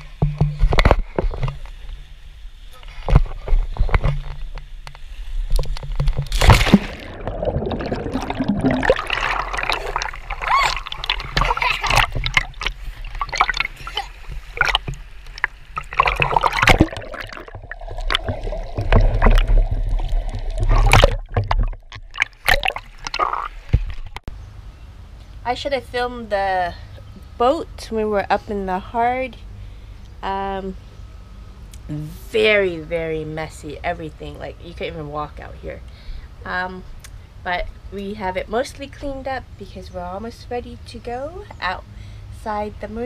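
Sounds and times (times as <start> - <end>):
water splashing against camera: 2.9 - 24.3.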